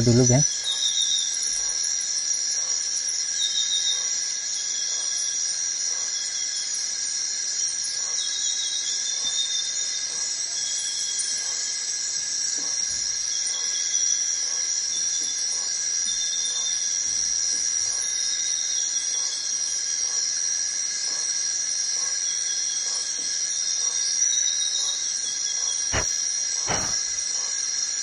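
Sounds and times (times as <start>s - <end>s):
insects buzzing in chorus: 0.0s - 28.0s
sharp clicks: 25.9s - 27.2s.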